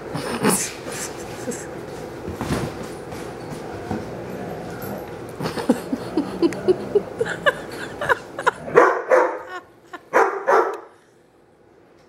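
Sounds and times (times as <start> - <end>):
dogs yipping: 8.0 - 10.9
dog barking: 8.7 - 9.5, 10.1 - 10.9.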